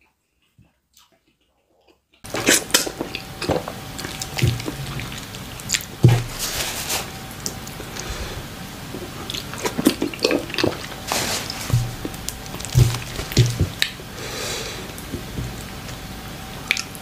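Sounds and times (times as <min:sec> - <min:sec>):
wet sticky squishing of food: 0:00.4 - 0:06.6, 0:08.8 - 0:14.1
dull low thumps: 0:11.7 - 0:13.9.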